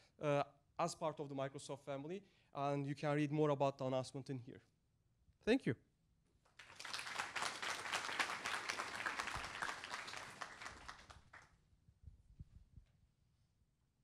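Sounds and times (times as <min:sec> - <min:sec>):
audience applauding: 0:06.6 - 0:11.5.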